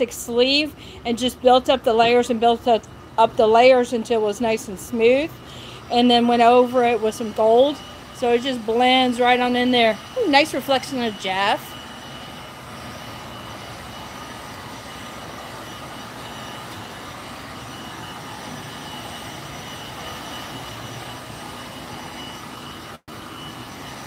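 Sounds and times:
faint high steady tone: 5.9s - 24.0s.

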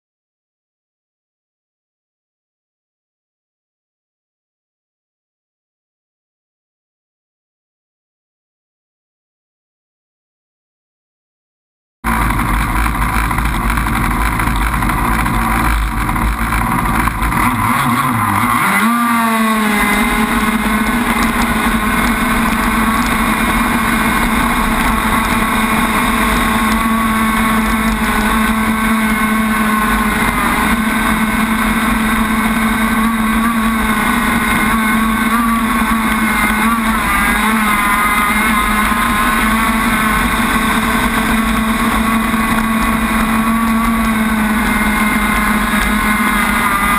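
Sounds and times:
rc boat gas engine running: 12.1s - 46.9s.

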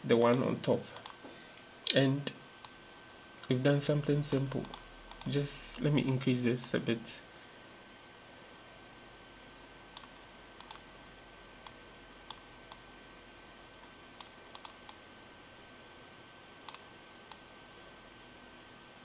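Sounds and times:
faint steady hiss: 0.0s - 19.0s
computer mouse button clicking: 4.3s - 5.3s, 10.0s - 10.8s, 14.2s - 15.0s.

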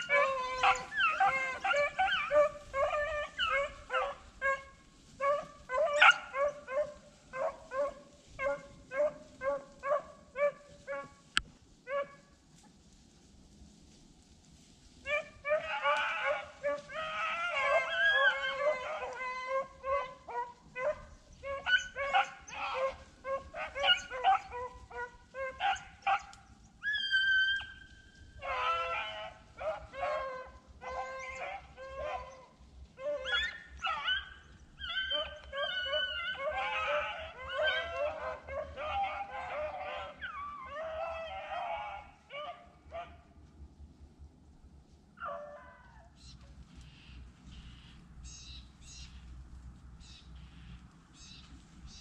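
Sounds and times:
dogs baying and barking: 0.0s - 12.3s, 15.0s - 43.4s.

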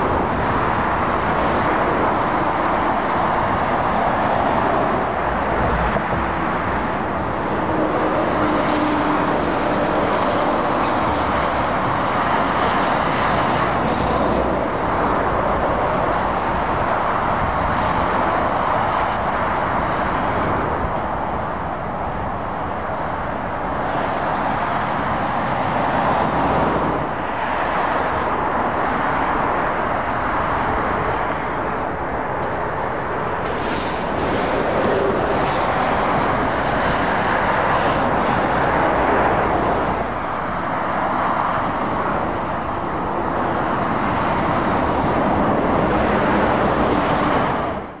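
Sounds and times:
lorries passing at speed: 0.0s - 48.0s.

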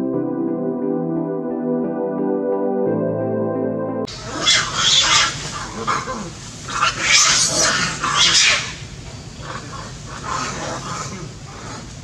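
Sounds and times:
monkeys screaming: 4.1s - 11.9s.

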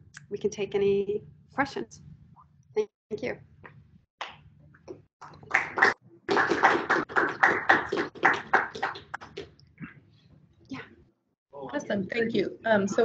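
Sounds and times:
audience applauding: 5.2s - 9.4s.

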